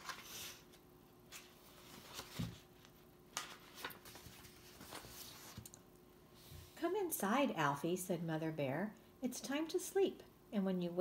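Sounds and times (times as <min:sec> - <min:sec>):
book pages turning: 0:00.0 - 0:05.8.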